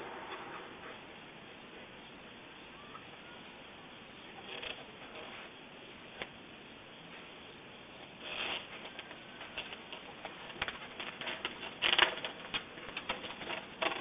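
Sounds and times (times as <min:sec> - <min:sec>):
dog scratching window screen: 0:08.2 - 0:09.8, 0:10.4 - 0:14.0.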